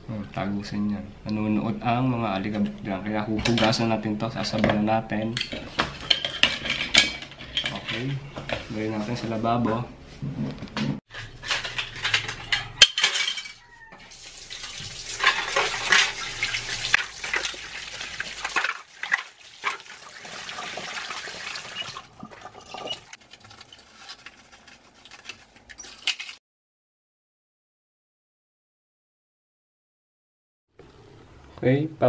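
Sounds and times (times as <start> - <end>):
plastic parts knocking and clattering: 5.5 - 8.7
tap water running into sink: 14.0 - 23.0
wet plastic parts being rubbed: 14.8 - 26.4.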